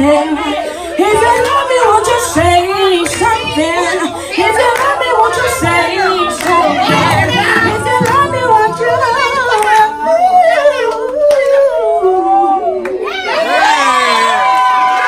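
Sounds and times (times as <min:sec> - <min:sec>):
person singing into a microphone: 0:00.0 - 0:13.1
backing music: 0:04.4 - 0:11.1.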